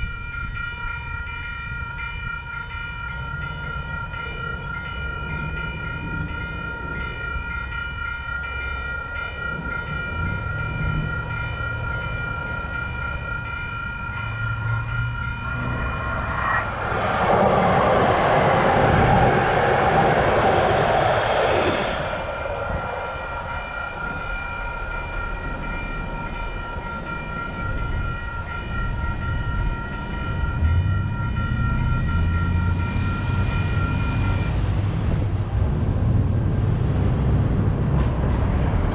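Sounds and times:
railroad crossing warning bell: 0.0s - 38.9s
train wheel noise: 1.2s - 38.9s
car engines rumbling: 14.0s - 24.7s, 29.6s - 38.9s.

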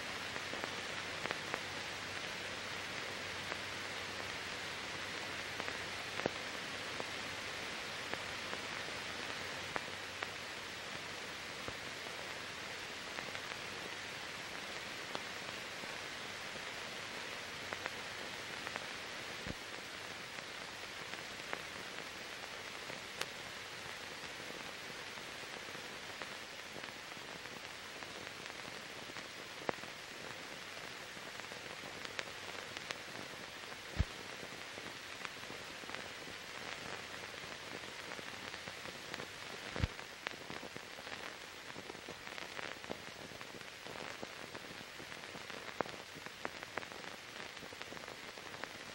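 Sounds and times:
steady film hiss: 0.0s - 48.9s
sharp clicks and pops: 33.7s - 34.6s, 37.7s - 48.0s.

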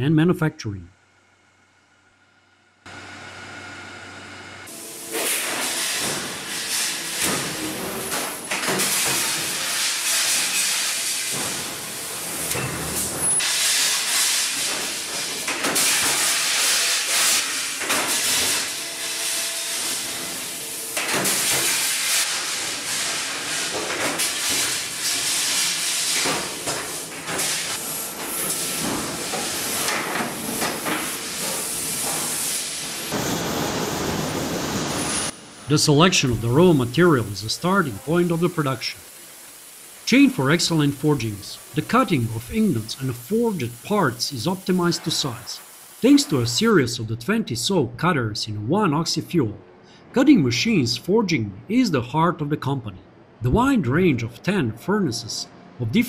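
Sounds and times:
forging press hissing: 5.0s - 46.6s.

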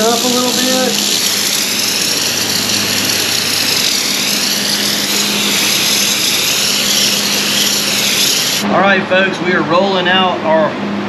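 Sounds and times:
spray gun air hiss: 0.0s - 8.6s.

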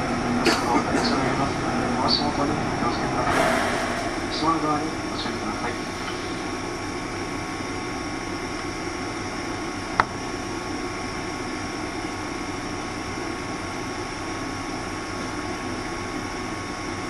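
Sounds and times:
train cabin noise: 0.0s - 6.9s
thin steady hum: 0.0s - 10.4s.

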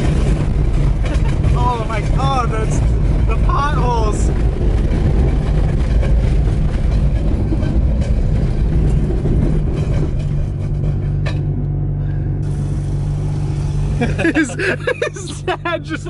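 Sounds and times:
wheel rims rattling on pavement: 0.0s - 11.5s
car engine: 0.0s - 16.0s.

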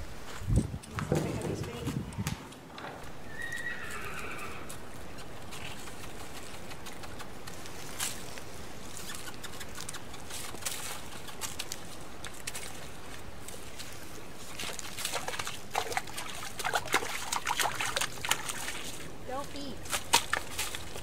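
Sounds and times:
horse whinnying: 3.2s - 4.8s.

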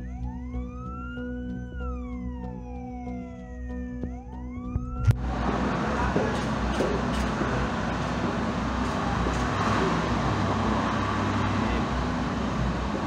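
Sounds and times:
fire truck siren wailing: 0.0s - 13.0s
steady rushing noise: 4.8s - 13.0s.

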